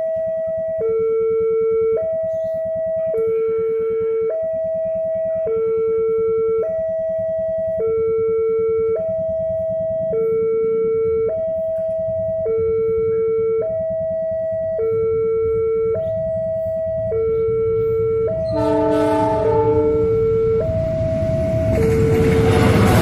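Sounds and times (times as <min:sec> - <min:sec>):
level-crossing alarm two-tone: 0:00.0 - 0:23.0
train rumble: 0:15.4 - 0:23.0
locomotive horn: 0:17.3 - 0:20.7.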